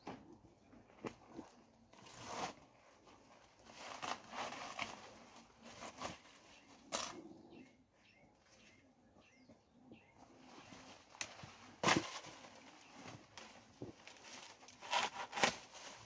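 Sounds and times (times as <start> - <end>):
bird chirps: 6.4 - 10.8.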